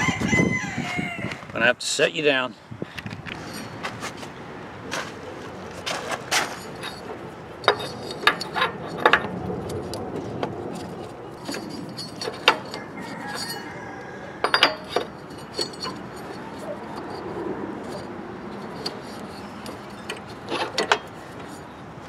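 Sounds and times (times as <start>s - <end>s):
metallic clinks and knocks: 6.3s - 21.7s.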